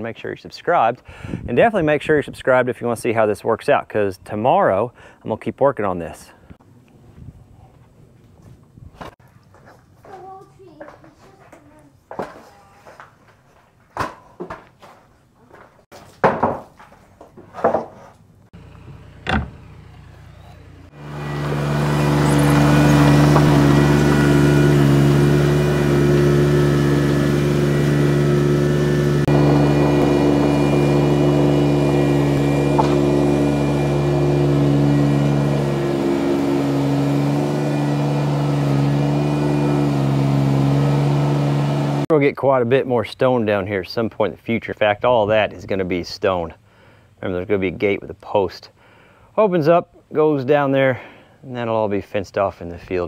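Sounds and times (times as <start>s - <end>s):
vehicle engine running: 18.6s - 42.1s
sharp knocks: 18.8s - 19.6s, 32.7s - 33.1s.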